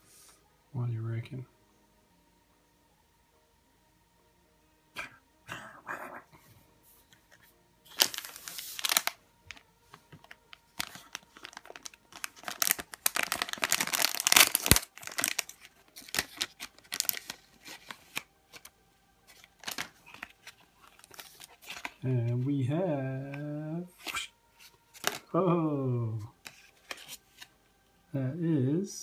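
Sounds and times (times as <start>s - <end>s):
foil wrapper tearing and crinkling: 7.9s - 9.6s, 10.2s - 18.7s, 19.3s - 22.0s, 24.9s - 25.3s.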